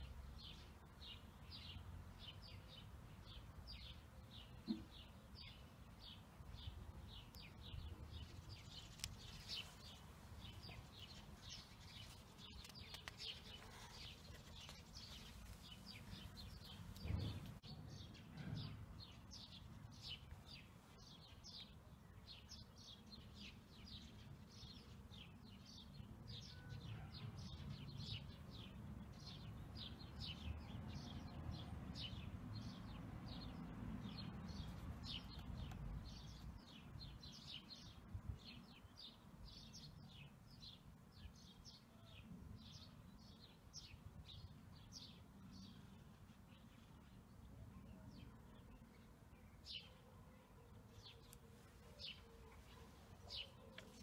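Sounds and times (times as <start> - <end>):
small bird chirping: 0.0 - 31.4.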